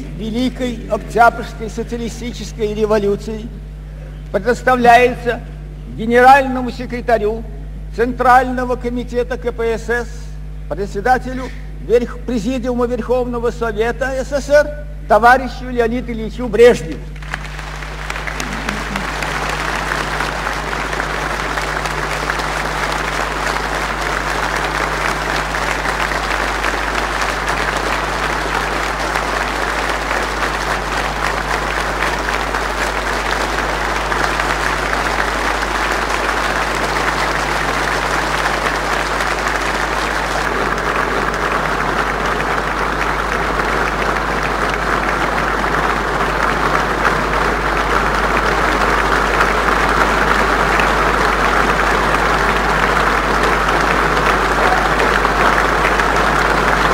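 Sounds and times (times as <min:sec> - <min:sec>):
large audience applauding: 0:17.1 - 0:56.9.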